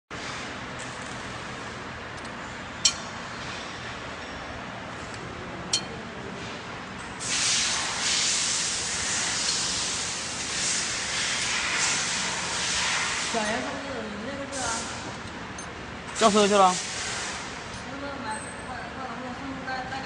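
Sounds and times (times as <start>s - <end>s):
steel rim clinking against metal: 5.7s - 6.0s
machine hissing: 7.2s - 13.8s, 16.2s - 17.6s.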